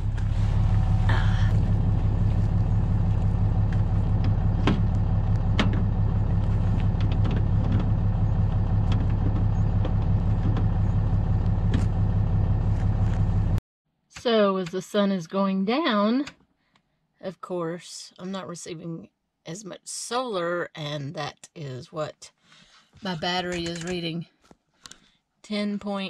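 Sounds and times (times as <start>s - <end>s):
truck engine idling: 0.0s - 13.6s
handling clicks and knocks: 3.7s - 12.0s.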